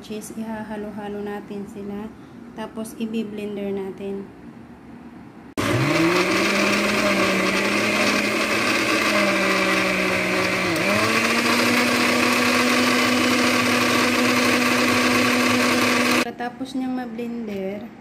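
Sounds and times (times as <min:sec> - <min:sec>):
blender running: 0:05.6 - 0:16.3.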